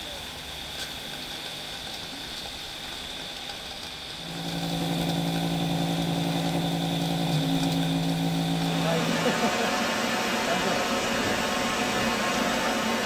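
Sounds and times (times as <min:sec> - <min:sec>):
steam hissing: 0:00.0 - 0:13.0
low hum with overtones: 0:04.2 - 0:11.9.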